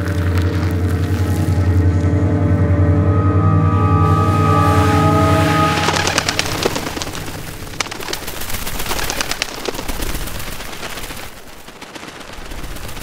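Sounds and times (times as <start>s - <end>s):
birds' wings flapping: 5.7s - 13.0s.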